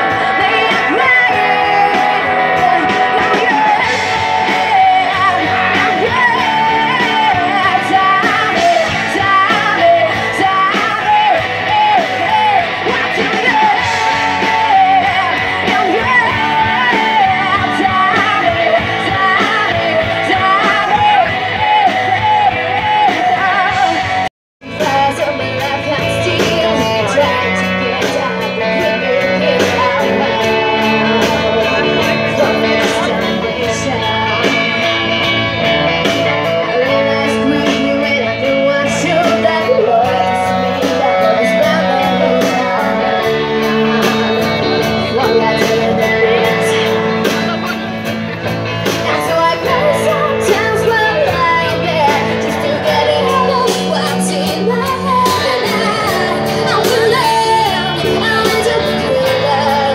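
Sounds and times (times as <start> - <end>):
girl singing: 0.0 - 24.0, 24.7 - 34.7, 36.1 - 47.1, 49.0 - 59.9
live rock band: 0.0 - 59.9.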